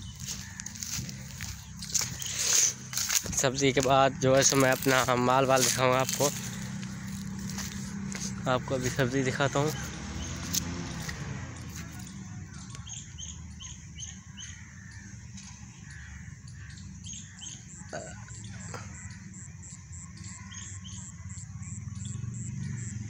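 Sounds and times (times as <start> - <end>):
steady low rumble: 0.0 - 12.3
birds chirping: 0.0 - 23.0.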